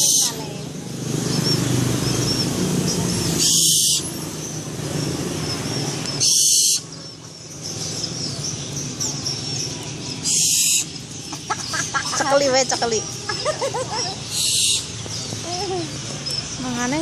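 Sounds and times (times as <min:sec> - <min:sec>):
owl hissing screeches: 0:03.4 - 0:04.2, 0:06.2 - 0:06.8, 0:10.2 - 0:10.9, 0:14.3 - 0:14.9.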